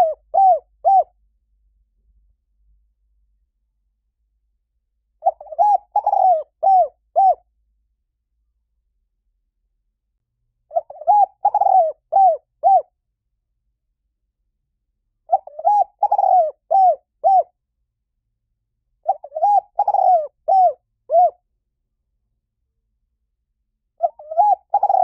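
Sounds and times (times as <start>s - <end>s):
dove cooing: 0.0s - 1.2s, 5.2s - 7.4s, 10.7s - 12.9s, 15.3s - 17.5s, 19.0s - 21.4s, 24.0s - 25.0s.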